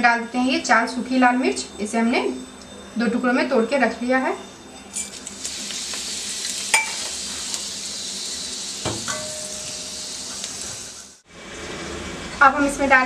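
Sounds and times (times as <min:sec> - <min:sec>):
chillies sizzling in hot oil: 0:04.9 - 0:11.3.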